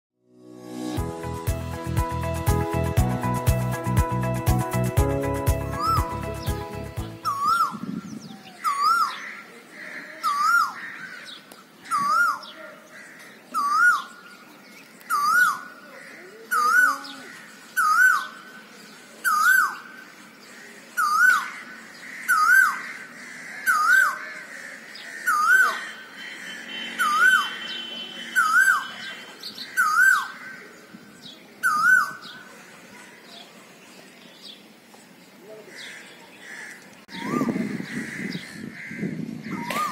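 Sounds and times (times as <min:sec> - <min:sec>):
bird calling two-part note: 0:25.3 - 0:30.4.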